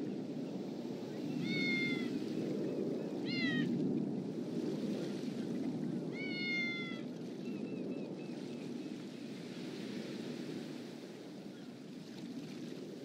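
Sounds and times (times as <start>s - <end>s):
cat meowing: 1.4s - 2.1s, 3.3s - 3.7s, 6.1s - 7.0s.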